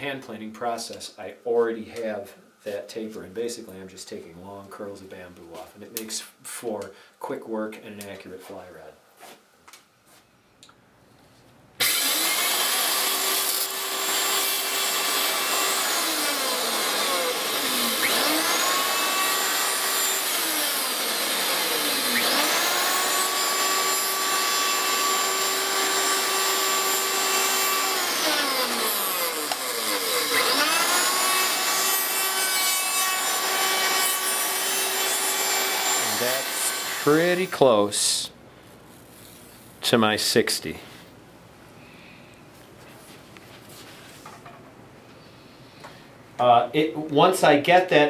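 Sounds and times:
electric router whining: 11.8 - 37.5
router cutting bamboo: 11.8 - 37.5.

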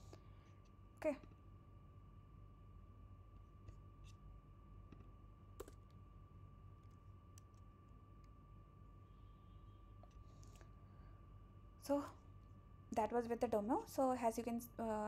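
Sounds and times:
faint steady hum: 0.0 - 15.0
faint computer clicks: 5.6 - 6.0.

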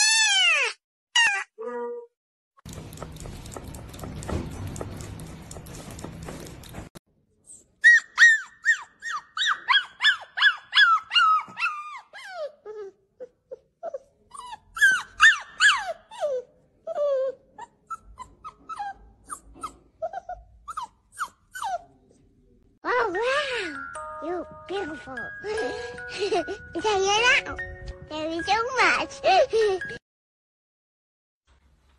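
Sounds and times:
puppy whimpering: 7.8 - 22.0.

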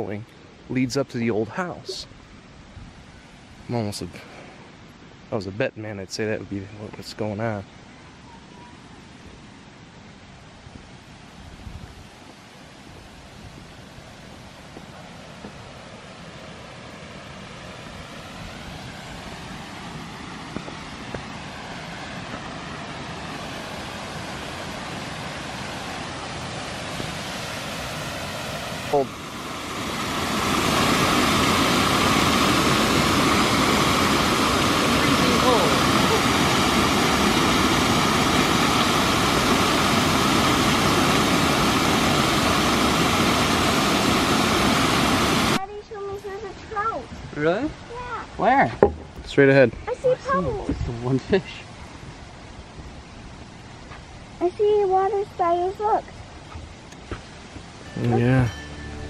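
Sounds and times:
waterfall pouring over a dam: 12.0 - 48.6.

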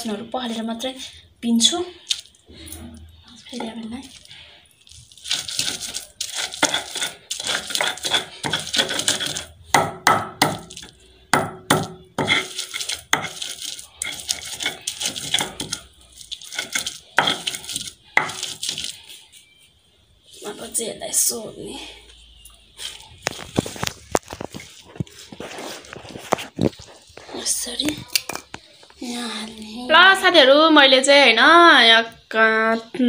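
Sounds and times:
stone pestle scraping on grinding stone: 5.1 - 19.2.

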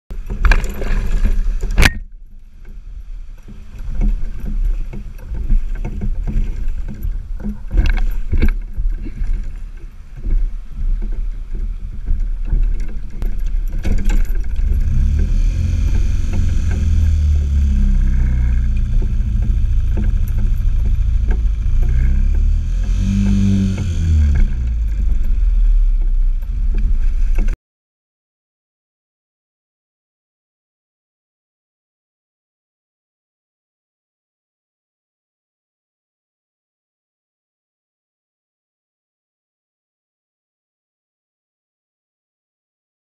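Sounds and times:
water sloshing against boat: 0.1 - 27.6
wind rumbling on microphone: 0.1 - 27.6
outboard motor idling: 2.4 - 27.6.

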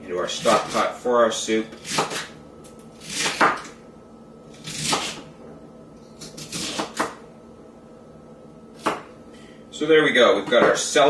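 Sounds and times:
knife chopping on wooden board: 1.8 - 2.3, 3.0 - 3.7, 4.6 - 5.3, 6.2 - 7.2, 8.8 - 9.1.

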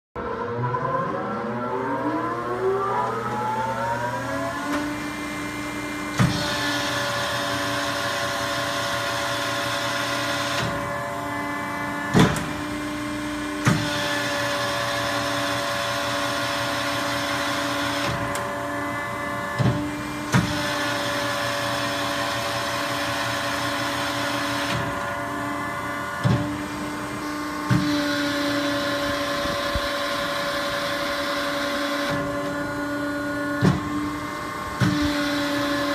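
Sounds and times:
motor whining: 0.4 - 35.9.

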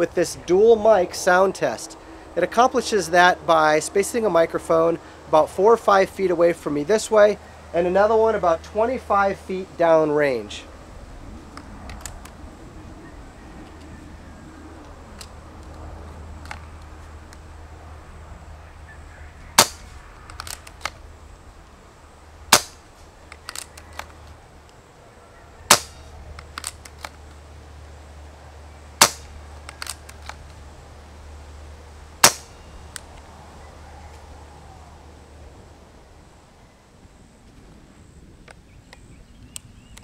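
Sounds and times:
light rifle clicks: 11.5 - 12.4, 19.6 - 21.0, 22.5 - 24.4, 25.7 - 27.4, 29.0 - 30.6
air rifle shots cracking: 19.6 - 21.0, 22.5 - 24.2, 25.7 - 27.1, 29.0 - 30.4, 32.2 - 32.6.

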